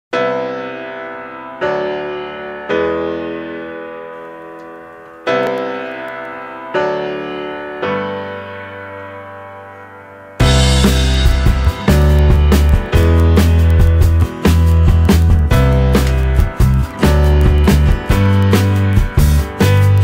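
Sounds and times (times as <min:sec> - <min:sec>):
slow piano chords: 0:00.2 - 0:20.0
drum-driven rock music: 0:10.4 - 0:20.0.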